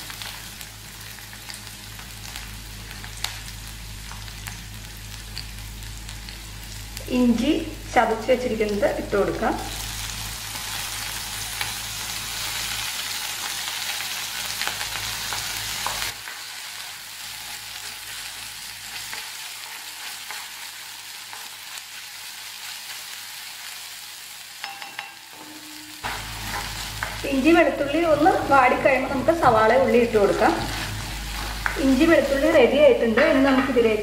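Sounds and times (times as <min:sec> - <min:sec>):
garlic sizzling in oil: 0:00.0 - 0:34.0
spatula scraping pan: 0:25.7 - 0:27.2.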